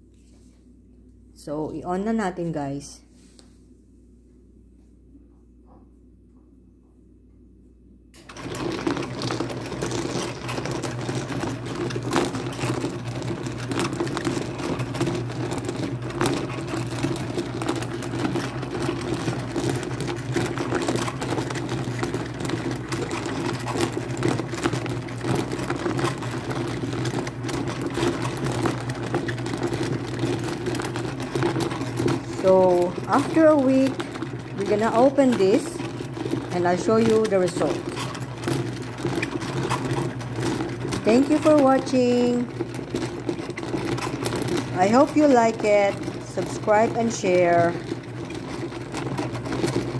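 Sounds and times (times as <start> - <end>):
motor humming: 8.2 - 49.9
rocks clattering in a barrel: 8.2 - 49.9.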